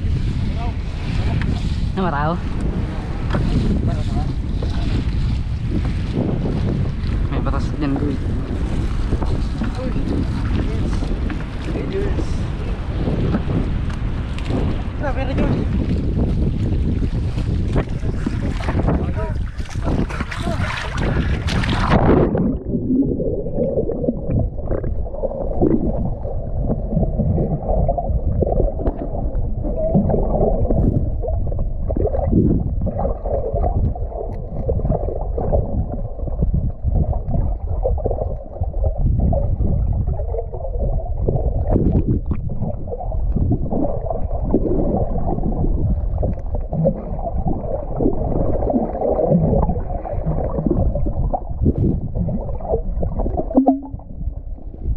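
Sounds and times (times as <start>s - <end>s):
uneven low rumble: 0.0s - 54.9s
muffled underwater gurgling: 14.5s - 54.9s.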